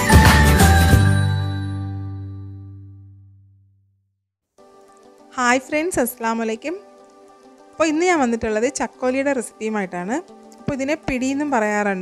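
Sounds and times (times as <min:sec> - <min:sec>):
intro music held chord: 0:00.0 - 0:03.6.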